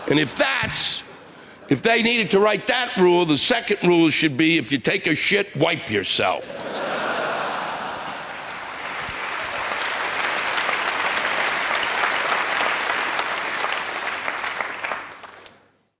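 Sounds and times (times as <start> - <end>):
audience applauding: 7.5 - 15.6.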